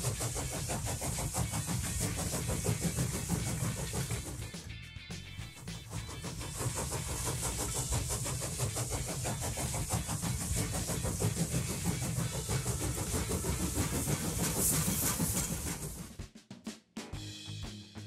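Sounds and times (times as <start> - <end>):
wheels rattling on plastic track: 0.0 - 4.6, 5.4 - 16.2
toy train motor whir: 0.0 - 16.1.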